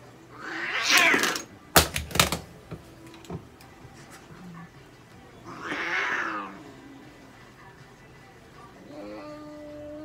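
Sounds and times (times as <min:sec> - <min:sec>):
cat hissing: 0:00.3 - 0:01.4, 0:05.4 - 0:06.8.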